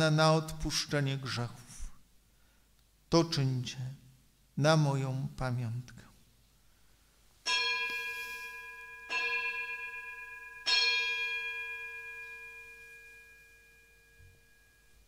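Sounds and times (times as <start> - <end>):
bell ringing: 7.5 - 15.0.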